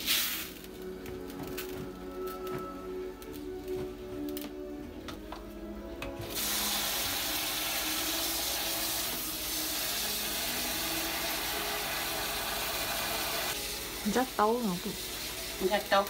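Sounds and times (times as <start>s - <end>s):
sink sprayer spraying water: 0.0s - 0.8s, 6.2s - 16.0s.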